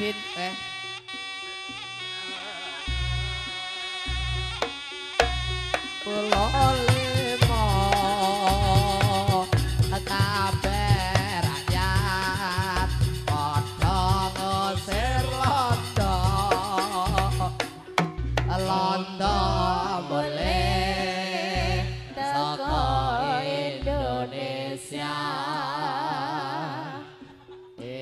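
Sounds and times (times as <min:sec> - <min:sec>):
person singing with wavering voice: 0:00.0 - 0:01.2, 0:02.0 - 0:28.0
low drum beat and percussion: 0:04.1 - 0:21.0.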